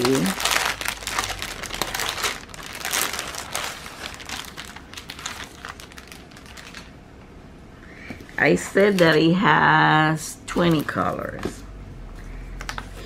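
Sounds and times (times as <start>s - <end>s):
packaging crinkling: 0.0s - 7.0s.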